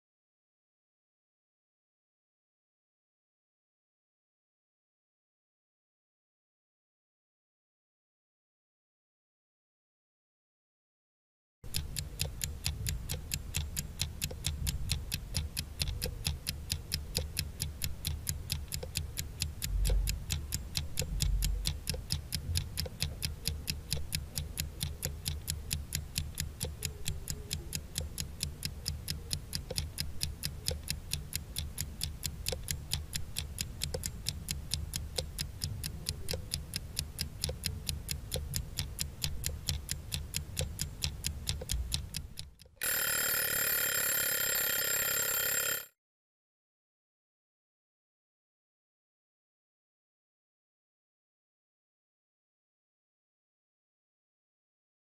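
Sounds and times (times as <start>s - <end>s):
clock ticking: 11.7s - 45.9s.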